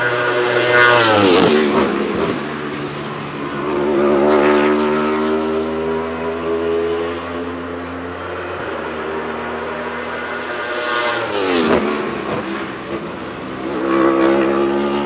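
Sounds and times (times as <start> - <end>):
race car engine at high revs: 0.0 - 15.0.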